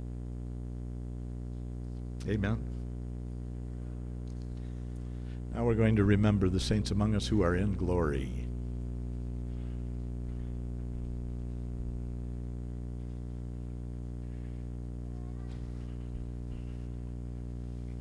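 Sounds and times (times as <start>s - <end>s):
low electrical hum: 0.0s - 18.0s
faint small noises: 9.1s - 18.0s.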